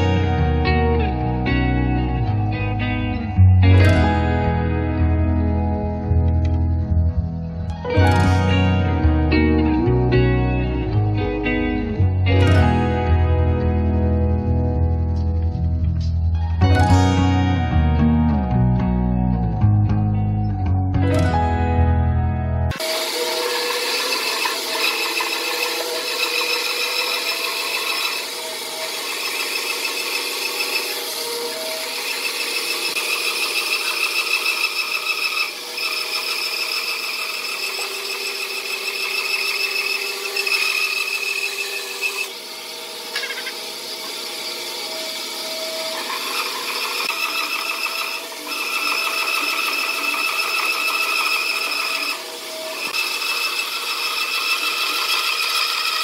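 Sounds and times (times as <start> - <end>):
band saw cutting wood: 22.7 - 56.0.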